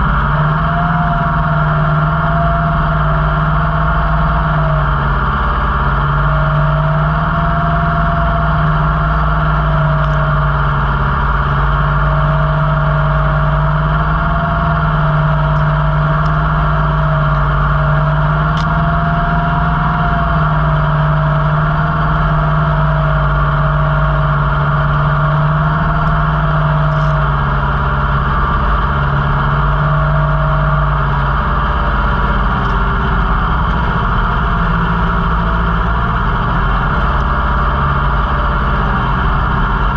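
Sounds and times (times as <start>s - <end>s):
tractor diesel engine: 0.0s - 39.9s.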